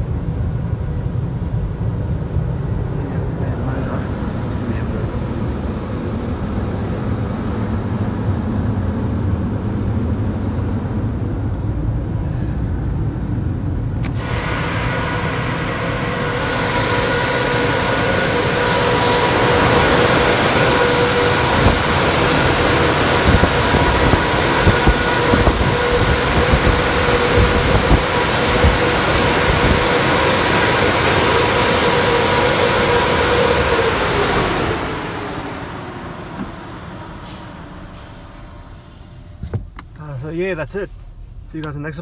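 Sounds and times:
dryer blowers rushing air: 0.0 - 42.0
fan whine: 0.0 - 42.0.

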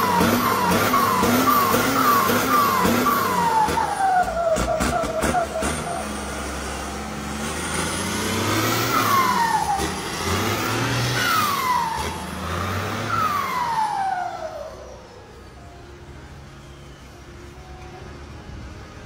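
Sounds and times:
tractor engine revving: 0.0 - 15.7
falling whistle: 0.5 - 6.0.

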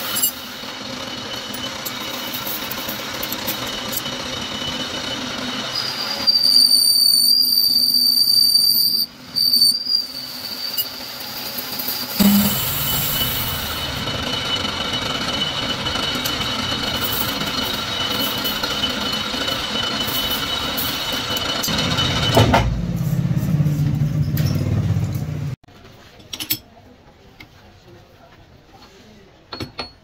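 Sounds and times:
metal lathe cutting with high whine: 0.0 - 8.4, 9.4 - 22.5
lathe running with low hum: 0.1 - 6.2, 11.1 - 22.4.

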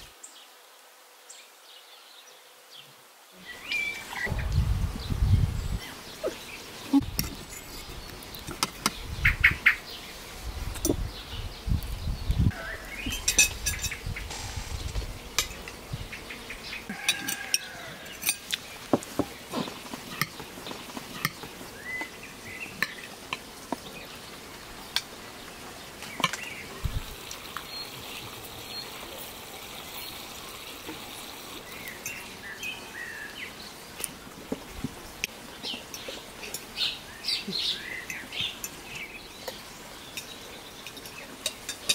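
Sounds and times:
birds chirping: 2.0 - 29.2, 29.8 - 41.9
forks clinking on plates: 13.1 - 14.0, 40.2 - 41.9.

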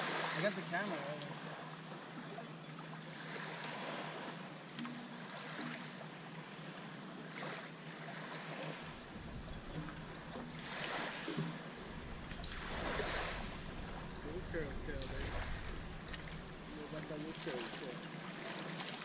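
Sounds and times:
small waves washing: 0.0 - 19.0
wind on microphone: 8.8 - 17.6.

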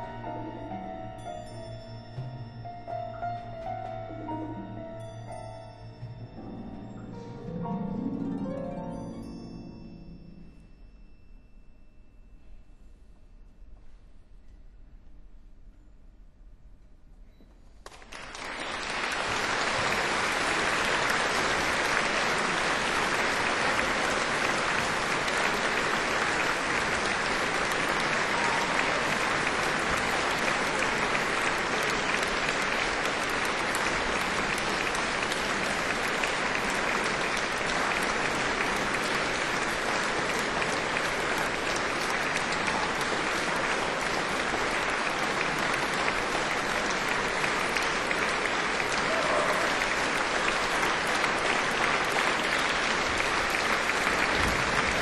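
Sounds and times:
audience applauding: 17.8 - 55.0.

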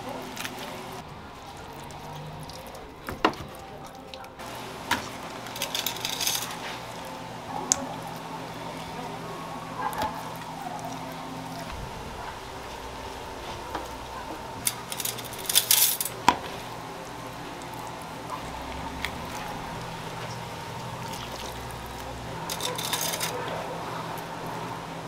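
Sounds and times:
steady background hum: 0.0 - 25.0
clatter and scraping: 5.4 - 6.8, 14.6 - 16.4, 22.5 - 23.5.

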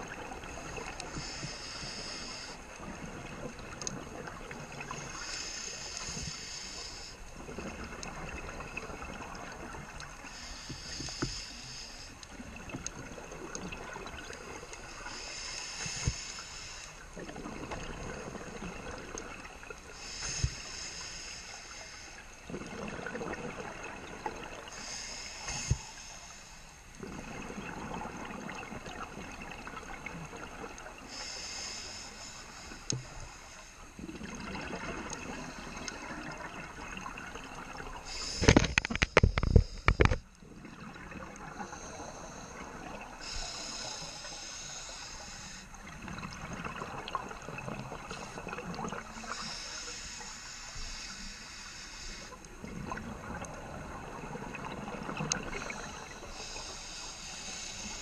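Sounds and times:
scuba regulator inhale hiss: 0.6 - 2.7, 4.8 - 7.2, 10.2 - 12.4, 14.4 - 17.0, 19.9 - 22.4, 24.7 - 26.8, 31.0 - 33.9, 38.0 - 40.2, 41.5 - 45.9, 48.1 - 52.5, 55.2 - 58.0.

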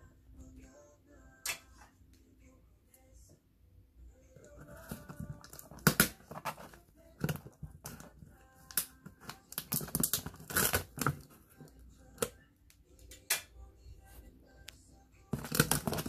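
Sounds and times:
faint background music: 0.0 - 16.0
box cutter slicing packing tape: 9.9 - 11.2.

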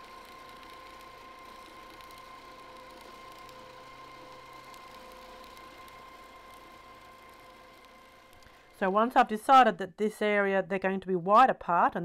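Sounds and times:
sewing machine motor whining: 0.0 - 9.0.

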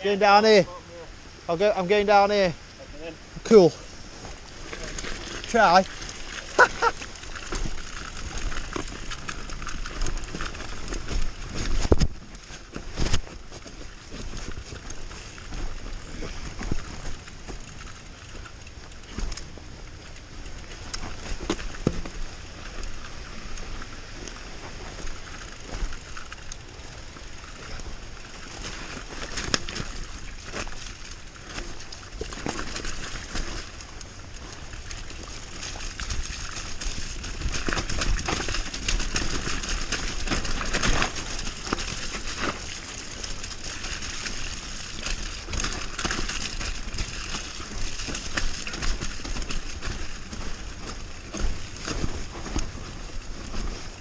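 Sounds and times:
bike tyres crunching over dirt: 0.0 - 54.0
bike knocks and rattles: 4.2 - 54.0.

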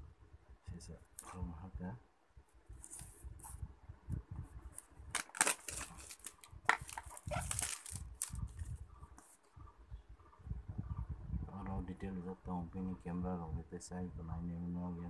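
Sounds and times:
box handling rumble: 5.1 - 8.7
plastic wrap crinkling: 5.1 - 8.7.

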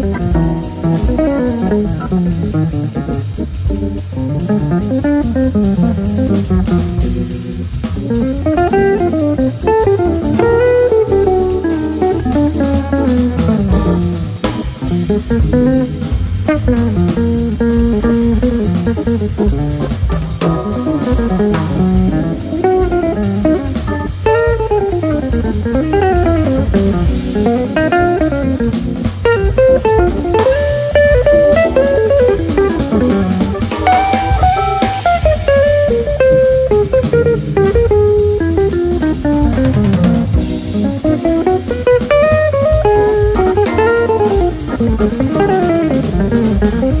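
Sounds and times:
drum kit: 0.0 - 47.0
electric guitar lines: 0.0 - 47.0.

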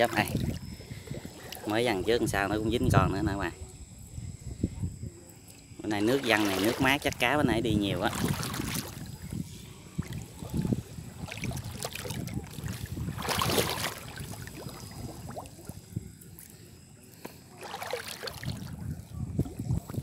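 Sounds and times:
pond water splashing: 6.0 - 9.3, 9.9 - 15.8, 17.4 - 18.8.

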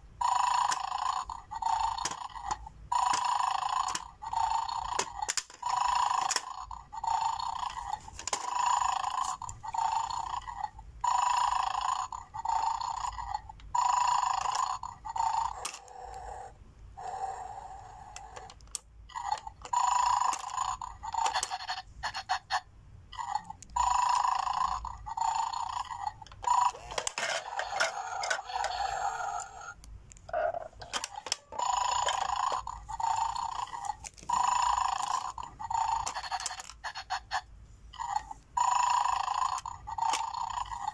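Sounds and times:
buzzy electronic toy tone: 0.2 - 5.1, 23.8 - 37.4.

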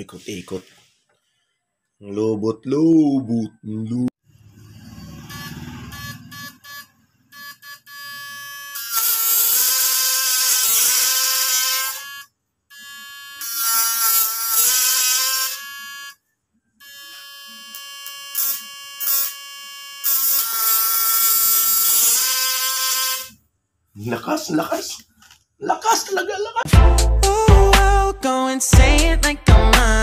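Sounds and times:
high-pitched buzzing whine: 16.8 - 21.7.

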